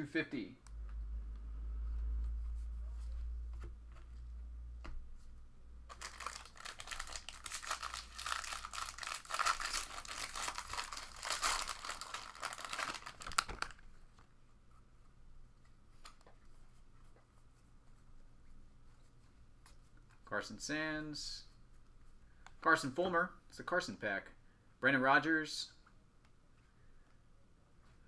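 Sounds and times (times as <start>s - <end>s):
foil wrapper tearing and crinkling: 5.9s - 13.8s.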